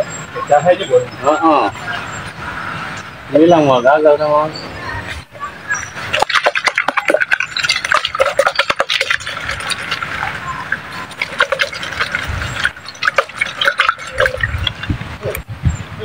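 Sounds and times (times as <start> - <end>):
wet bait sloshing and pouring: 6.1 - 15.0.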